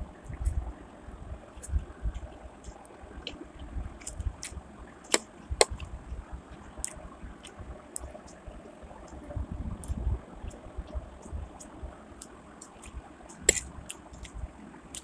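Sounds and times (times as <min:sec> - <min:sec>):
person chewing and slurping noodles: 0:11.6 - 0:14.3
fork clicking against plate: 0:12.7 - 0:14.3.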